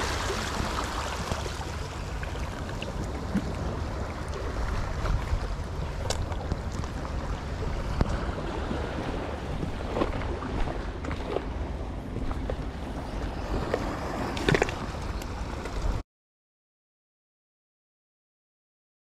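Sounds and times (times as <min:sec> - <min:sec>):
sea water washing: 0:00.0 - 0:16.0
wind noise on microphone: 0:02.4 - 0:16.0.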